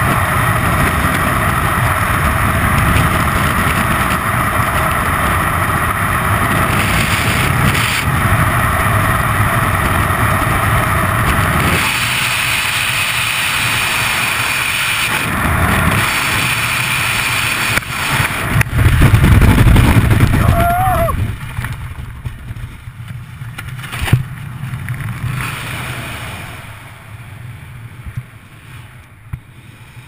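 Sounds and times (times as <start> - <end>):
freefall wind rushing and buffeting: 0.0 - 30.0
parachute deploying: 0.1 - 30.0.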